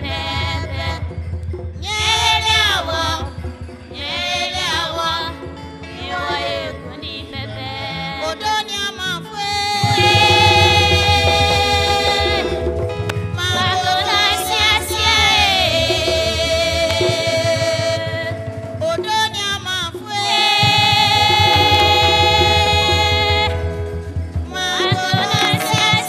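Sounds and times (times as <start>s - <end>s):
guitar: 0.0s - 26.0s
keyboard: 0.0s - 26.0s
backing voices singing: 1.8s - 8.6s, 9.4s - 26.0s
woman singing lead: 4.0s - 26.0s
drums: 9.8s - 26.0s.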